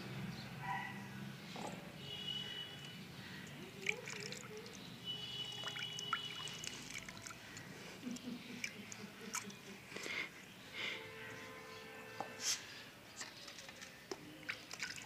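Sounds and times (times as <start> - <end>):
water splashing in a steel bowl: 3.4 - 9.6, 14.2 - 15.0.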